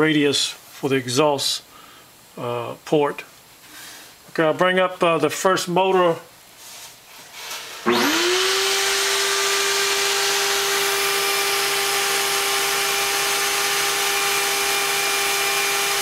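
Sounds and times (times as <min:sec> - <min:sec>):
motor whine: 0:07.9 - 0:16.0.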